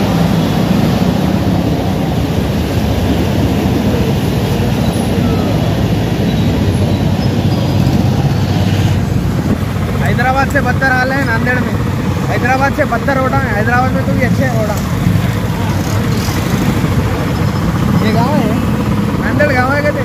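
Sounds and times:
motorcycle engine running: 0:00.0 - 0:20.0
tyres rolling through water: 0:00.0 - 0:20.0.

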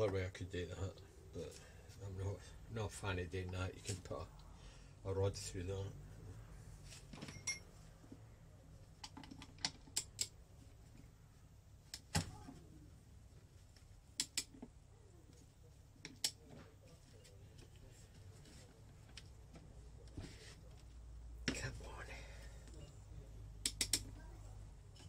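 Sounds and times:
socket wrench clicking on metal: 0:14.2 - 0:14.6, 0:23.6 - 0:24.1.

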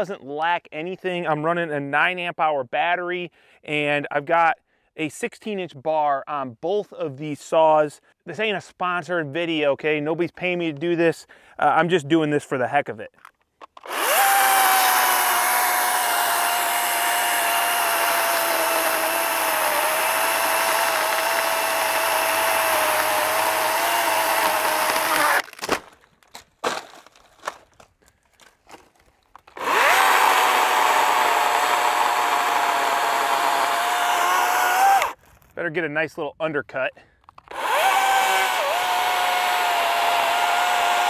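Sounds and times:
electric chainsaw cutting: 0:13.8 - 0:25.5, 0:29.5 - 0:35.2, 0:37.5 - 0:41.0.

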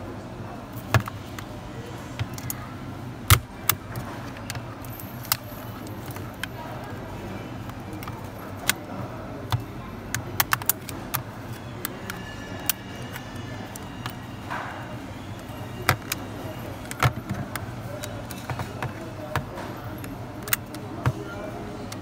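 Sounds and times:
plastic clips snapping: 0:09.5 - 0:12.8, 0:16.8 - 0:21.2.

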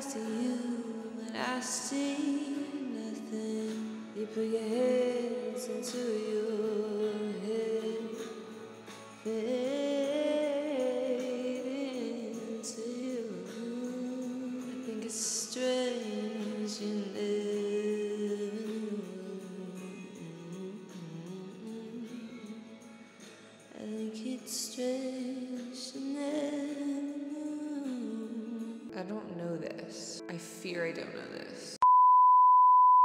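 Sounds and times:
person singing: 0:00.0 - 0:22.8
background music: 0:00.0 - 0:31.8.

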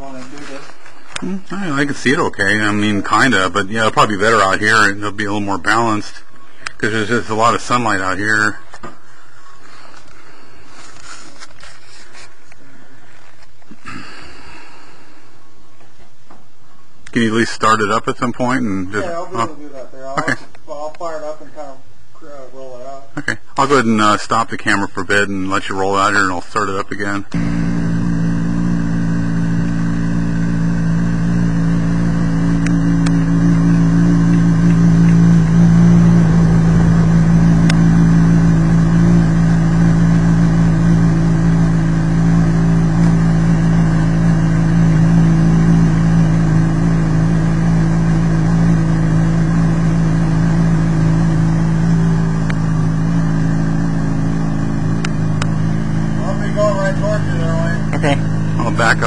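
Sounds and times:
motorcycle engine idling: 0:00.0 - 0:11.3, 0:27.2 - 0:59.0.

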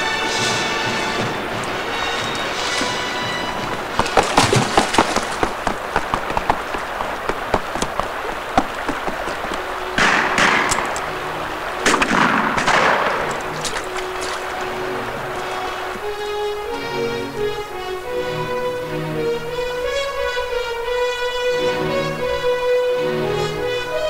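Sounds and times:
gunfire cracks: 0:10.0 - 0:11.0, 0:11.8 - 0:13.4.

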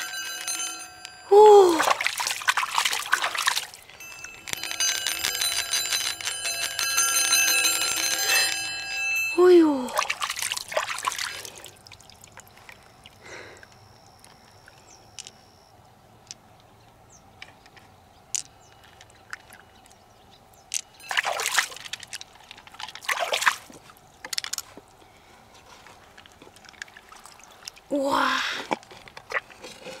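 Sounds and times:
water sloshing and splashing: 0:01.5 - 0:06.3, 0:09.5 - 0:13.2, 0:21.0 - 0:25.0, 0:25.6 - 0:30.0.

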